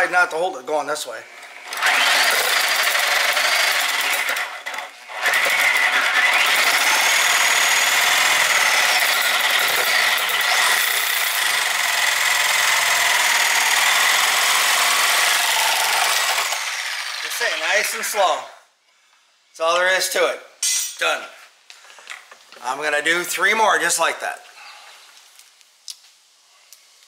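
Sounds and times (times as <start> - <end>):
reciprocating saw cutting metal: 1.5 - 18.0.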